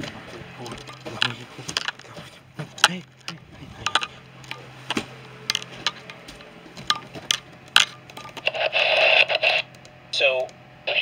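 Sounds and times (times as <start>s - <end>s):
low electrical hum: 0.0s - 11.0s
camera handling clicks and knocks: 0.8s - 2.1s, 2.8s - 6.2s.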